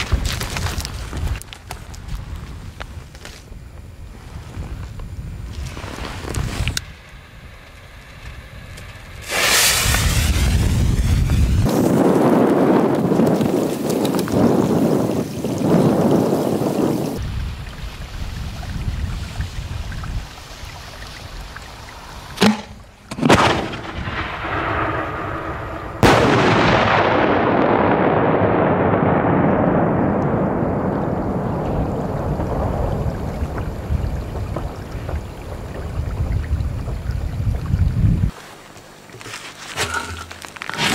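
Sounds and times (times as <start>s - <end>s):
faint crackles: 0.0s - 19.5s, 29.6s - 40.9s
wind buffeting microphone: 0.0s - 22.4s, 23.4s - 38.4s
firework bangs: 6.9s - 12.4s, 22.4s - 35.4s
rumbling echo: 22.8s - 37.0s.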